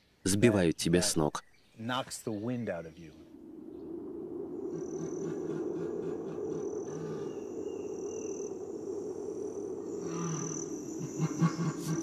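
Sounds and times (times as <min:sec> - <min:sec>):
high insect note: 0:03.1 - 0:12.0.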